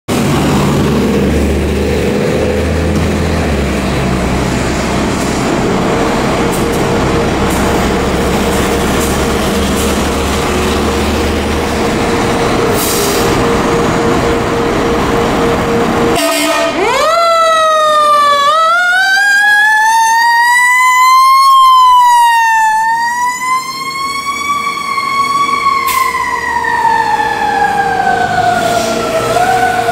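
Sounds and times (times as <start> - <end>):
diesel engine running loud: 0.1 - 17.1, 23.9 - 29.9
steady tone: 3.8 - 16.8
fire truck siren winding up: 6.1 - 29.9.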